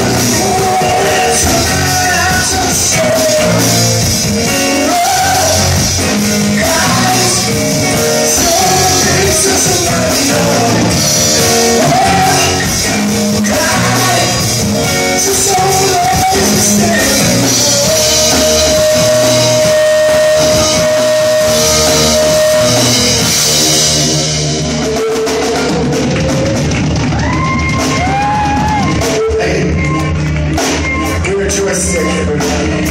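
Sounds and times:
person singing: 0:00.0 - 0:24.0
drum kit: 0:00.0 - 0:32.9.

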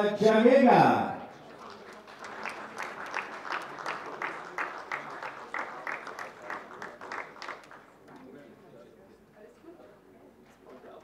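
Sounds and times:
audience applauding: 0:01.4 - 0:08.4.

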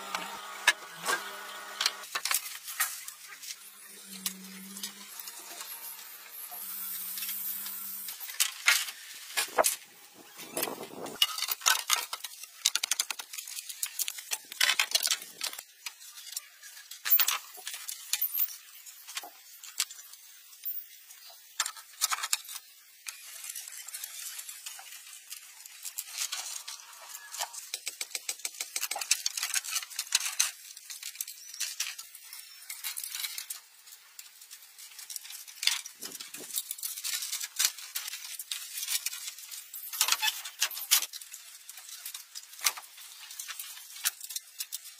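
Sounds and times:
bamboo poles clattering: 0:01.9 - 0:18.2, 0:21.4 - 0:44.9.

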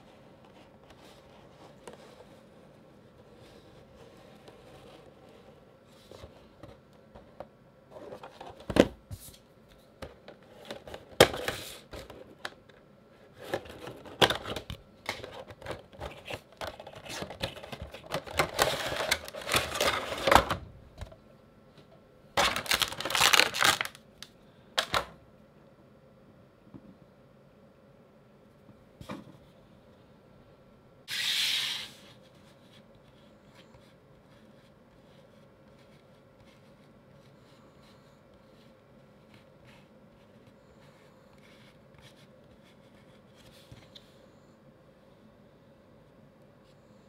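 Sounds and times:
plastic packaging rustling: 0:13.4 - 0:20.6, 0:22.4 - 0:25.0.

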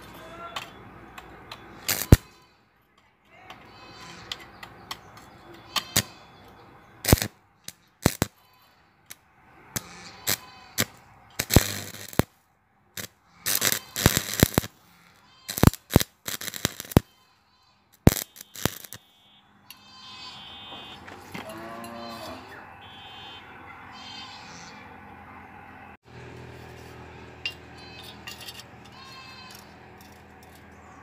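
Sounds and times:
welding arc crackling and popping: 0:01.9 - 0:02.2, 0:07.0 - 0:08.3, 0:09.8 - 0:12.3, 0:13.0 - 0:14.8, 0:15.5 - 0:17.0, 0:18.0 - 0:19.1.

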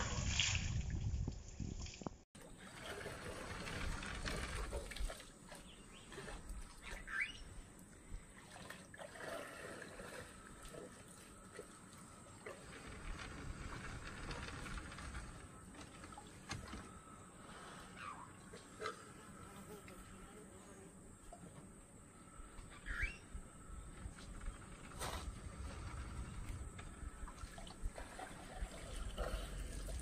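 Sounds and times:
water trickling and lapping: 0:00.0 - 0:20.3, 0:21.1 - 0:30.0
faint bird calls: 0:05.6 - 0:07.7, 0:16.8 - 0:19.8, 0:22.1 - 0:27.4.

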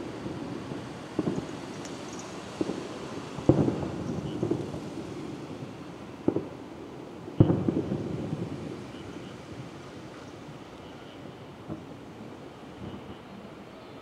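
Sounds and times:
firework booms with echo: 0:00.0 - 0:09.1.

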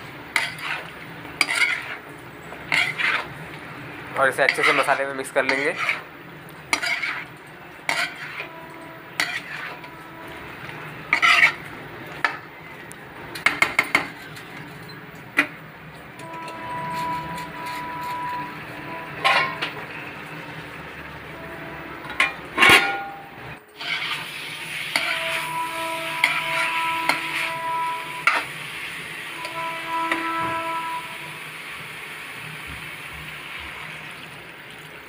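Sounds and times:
spoon scraping metal pot: 0:00.3 - 0:02.0, 0:02.6 - 0:03.4, 0:04.3 - 0:06.1, 0:06.7 - 0:12.4, 0:16.2 - 0:19.9, 0:23.8 - 0:24.2, 0:24.9 - 0:28.5.

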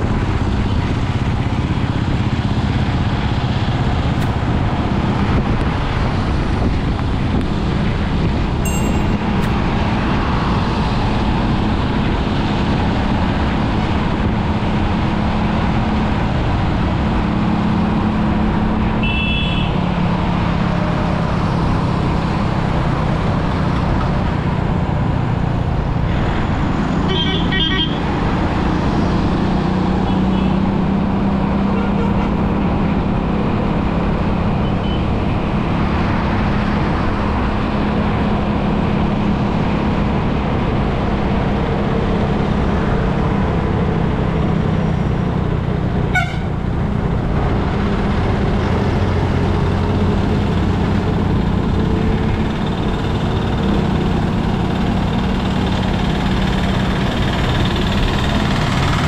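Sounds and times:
engine hum: 0:00.0 - 0:59.0
road and wind noise: 0:00.0 - 0:59.0
vehicle horns: 0:19.0 - 0:19.8, 0:27.0 - 0:28.0, 0:31.7 - 0:32.4, 0:46.1 - 0:46.6.

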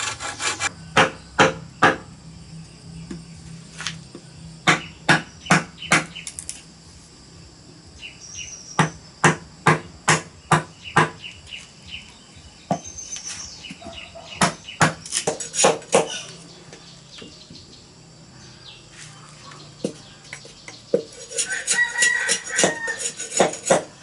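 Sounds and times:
hammer striking metal chisel: 0:19.8 - 0:24.0.

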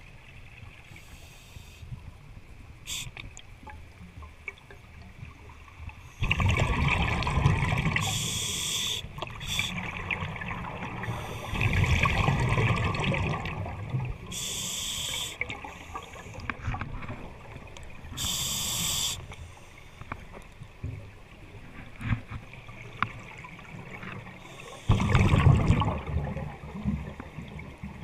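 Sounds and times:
exhaled bubbles rumbling: 0:06.2 - 0:08.2, 0:09.2 - 0:14.3, 0:24.9 - 0:28.0
hissing regulator inhalations: 0:08.0 - 0:09.9, 0:11.0 - 0:11.8, 0:14.3 - 0:16.5, 0:18.2 - 0:19.8.

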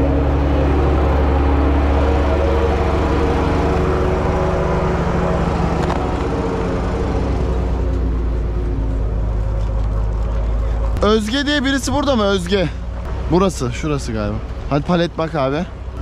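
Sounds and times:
engine running with low hum: 0:00.0 - 0:16.0.

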